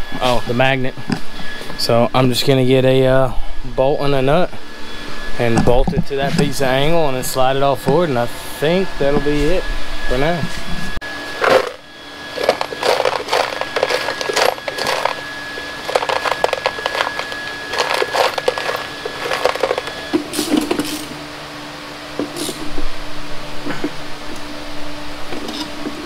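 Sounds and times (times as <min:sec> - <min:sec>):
steady hum: 0:00.0 - 0:26.0
metal tools clattering on workbench: 0:11.4 - 0:11.8, 0:12.4 - 0:15.2, 0:15.8 - 0:21.1.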